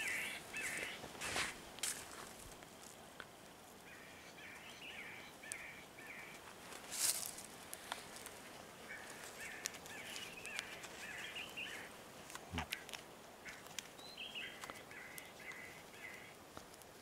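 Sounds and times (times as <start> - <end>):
birds chirping: 0.0 - 1.4, 3.8 - 6.4, 8.1 - 16.4
clicks and rustles of handling: 9.1 - 11.2, 16.5 - 17.0.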